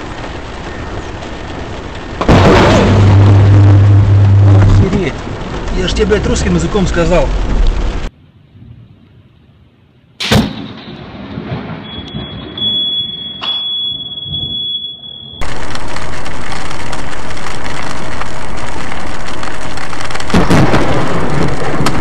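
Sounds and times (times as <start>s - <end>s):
heavy rain on a car: 0.0s - 8.1s, 15.4s - 22.0s
lightning strike: 0.0s - 8.1s, 10.2s - 13.0s, 15.4s - 22.0s
thunderclap and rumbling thunder: 0.0s - 8.1s, 10.3s - 12.9s, 15.4s - 22.0s
high-pitched electronic beep: 11.8s - 15.4s.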